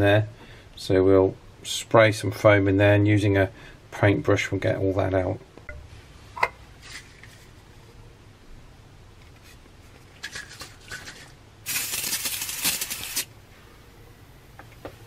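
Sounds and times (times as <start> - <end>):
aerosol can spraying: 11.7 - 13.3.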